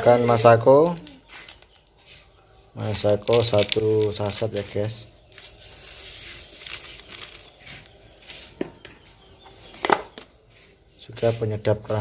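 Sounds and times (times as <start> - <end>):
plastic sachet tearing and crinkling: 0.3 - 2.0, 2.8 - 8.6.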